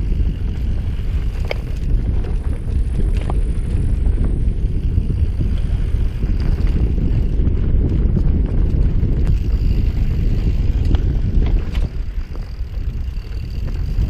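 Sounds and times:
bike clicks and rattles: 0:00.0 - 0:14.0
bike tyres rolling over dirt: 0:00.0 - 0:14.0
wind buffeting microphone: 0:00.0 - 0:14.0.

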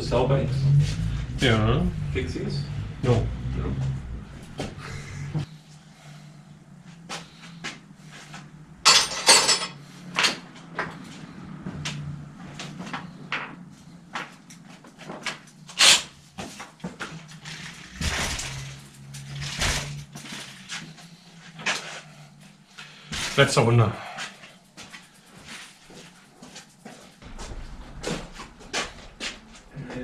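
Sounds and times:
steady low hum: 0:00.0 - 0:10.1, 0:16.2 - 0:30.0
bicycle clicks and rattles: 0:14.2 - 0:23.4, 0:24.4 - 0:27.8.

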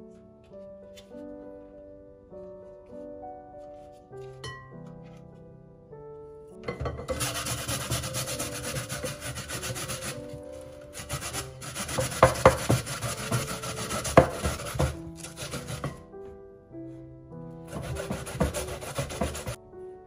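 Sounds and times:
potato rasping on metal grater: 0:07.1 - 0:16.0, 0:17.7 - 0:19.6
sharp knocks: 0:11.3 - 0:16.0.

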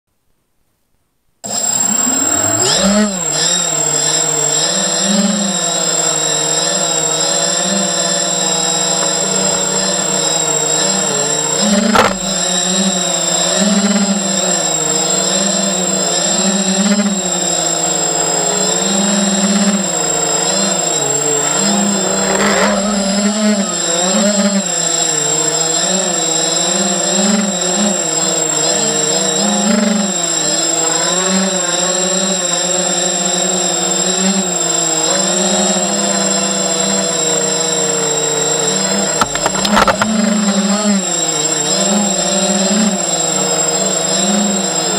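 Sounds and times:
drone motors and propellers whining: 0:01.5 - 0:44.9
sharp click: 0:11.8 - 0:12.5, 0:39.2 - 0:40.4.

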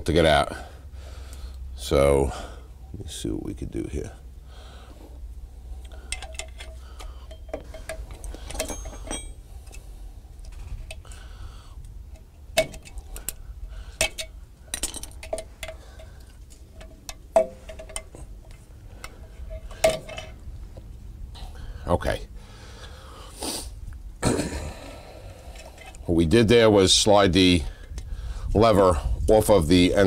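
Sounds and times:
metal tools clinking and scraping: 0:05.7 - 0:11.2, 0:12.1 - 0:20.4, 0:25.4 - 0:26.4.

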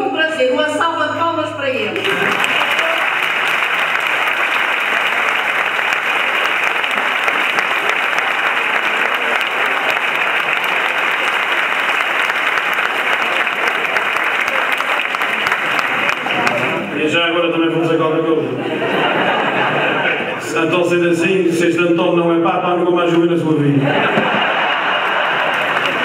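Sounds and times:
audience applauding: 0:02.0 - 0:17.5, 0:23.9 - 0:26.0.

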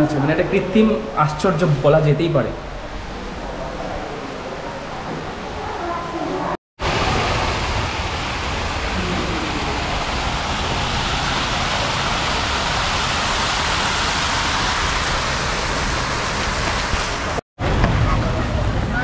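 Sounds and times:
waterfall pouring into pond: 0:06.8 - 0:17.4.

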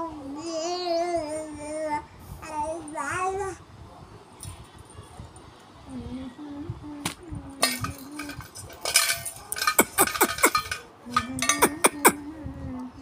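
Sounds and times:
metal pot clattering: 0:07.6 - 0:12.2.

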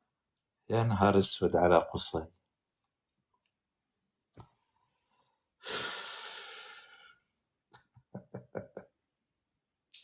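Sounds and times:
man sighing: 0:05.6 - 0:06.9
man chuckling: 0:07.8 - 0:09.1.

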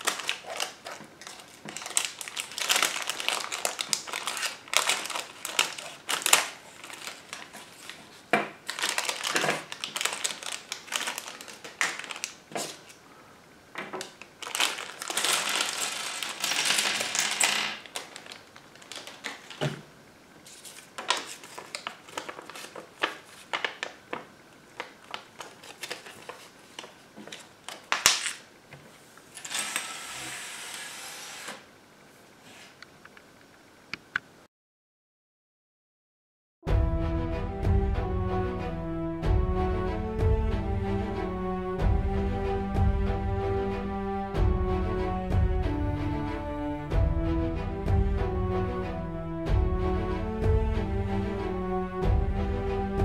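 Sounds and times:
scissors cutting plastic: 0:00.0 - 0:08.0, 0:08.7 - 0:13.0, 0:24.8 - 0:28.4
plastic bag crinkling: 0:00.0 - 0:13.0, 0:13.9 - 0:28.5
plastic bricks clattering: 0:14.0 - 0:19.8.

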